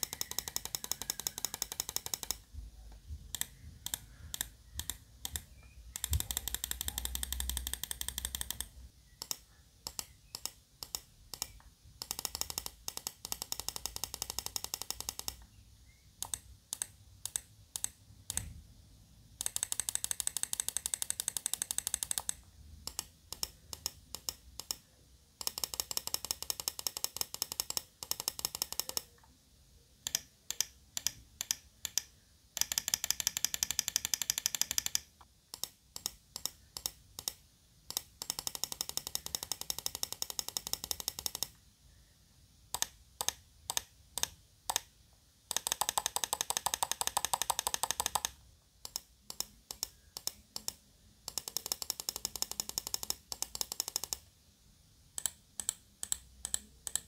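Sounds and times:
mouse button clicking: 0:03.3 - 0:15.5, 0:55.2 - 0:57.0.

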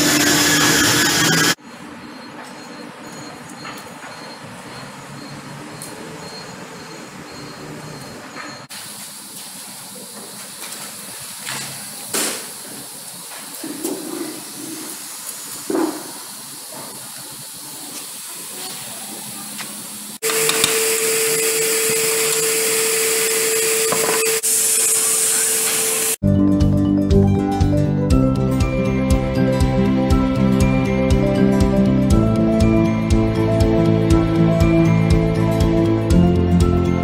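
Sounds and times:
woodworking machine humming: 0:00.0 - 0:01.6, 0:20.2 - 0:26.2
steady hiss: 0:08.7 - 0:20.2
music: 0:26.2 - 0:37.0.

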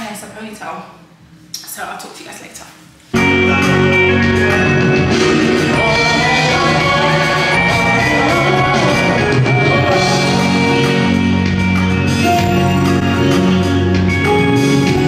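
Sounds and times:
person singing: 0:03.2 - 0:11.2
guitar: 0:03.2 - 0:15.0.

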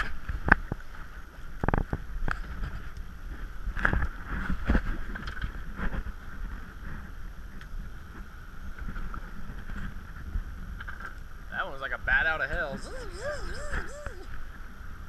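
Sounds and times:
wind buffeting camera: 0:00.0 - 0:11.5
boat and water noise: 0:00.0 - 0:15.0.

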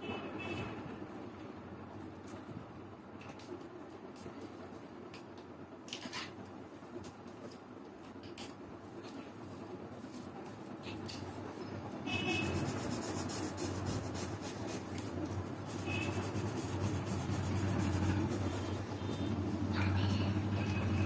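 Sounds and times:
low steady hum: 0:06.4 - 0:21.0
marker rubbing on paper: 0:12.1 - 0:21.0.

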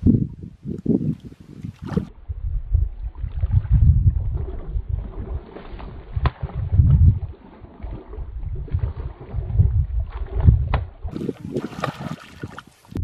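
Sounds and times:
fish splashing in water: 0:04.4 - 0:12.8.

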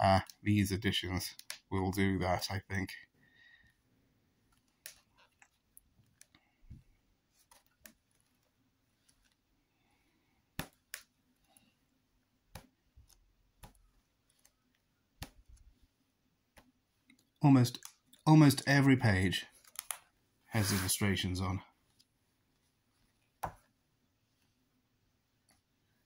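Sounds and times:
book pages being turned: 0:04.5 - 0:09.5, 0:12.5 - 0:15.9, 0:16.5 - 0:24.6.

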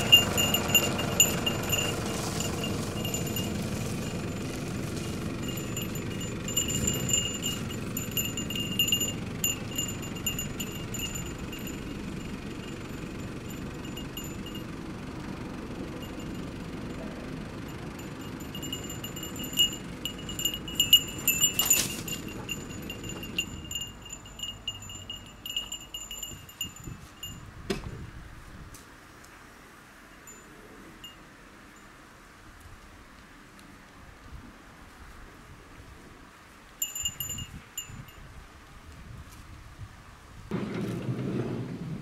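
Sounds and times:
small bells jingling: 0:00.0 - 0:15.0, 0:15.8 - 0:27.6, 0:36.8 - 0:38.3
van engine rumbling: 0:00.0 - 0:28.2.

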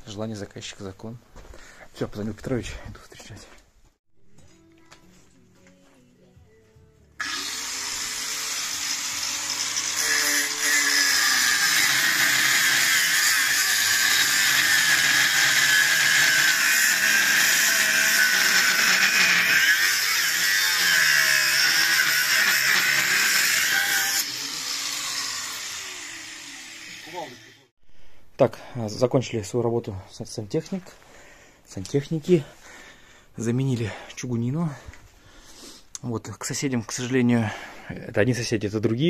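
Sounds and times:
angle grinder cutting metal pipe: 0:07.2 - 0:27.7.

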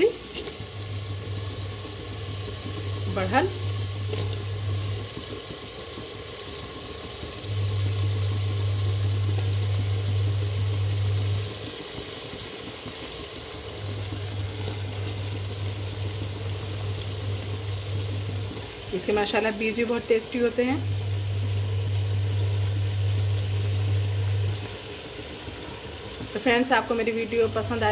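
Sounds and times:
oil and gravy sizzling: 0:00.0 - 0:27.9
steady low hum: 0:07.4 - 0:11.7, 0:13.7 - 0:24.8.

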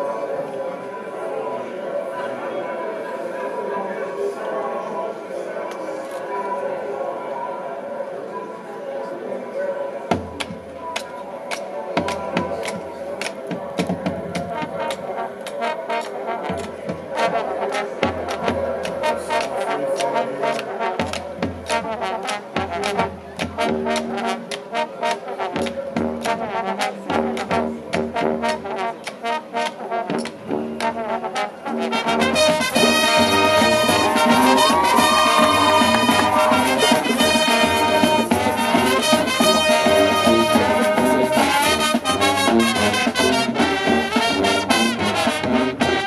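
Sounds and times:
marching band playing: 0:10.1 - 0:46.0.

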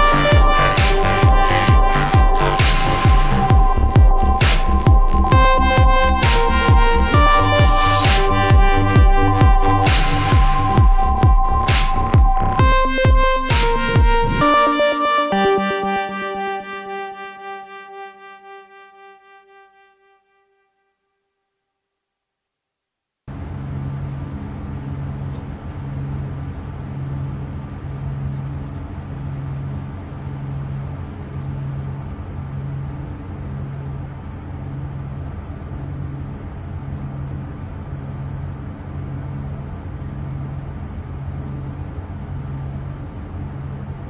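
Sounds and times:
ship engine pulsing drone: 0:00.0 - 0:20.4, 0:23.3 - 0:44.0.

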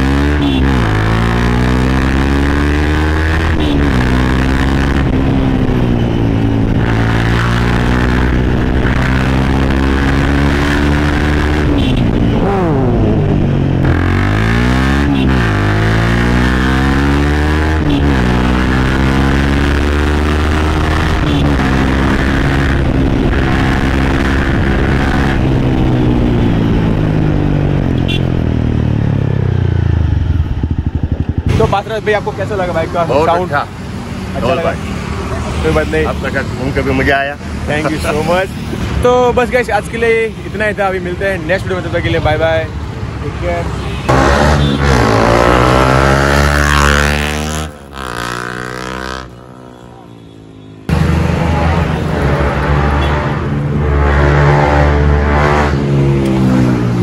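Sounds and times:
motorcycle engine accelerating: 0:00.0 - 0:33.3, 0:44.1 - 0:50.0.

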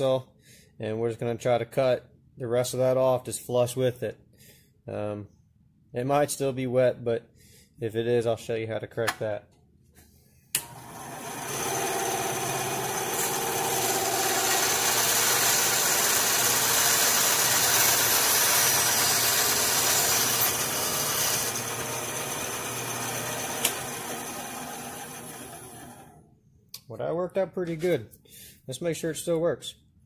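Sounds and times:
bandsaw cutting wood: 0:10.6 - 0:26.2
bandsaw running: 0:10.6 - 0:26.2.

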